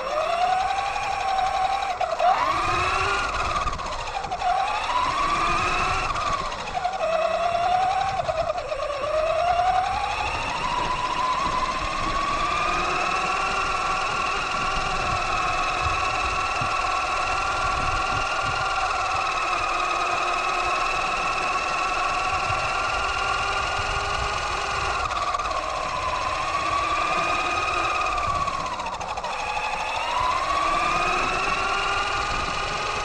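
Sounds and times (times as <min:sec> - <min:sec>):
electric motor whining: 0:00.0 - 0:33.0
tyres rumbling on road: 0:00.0 - 0:33.0.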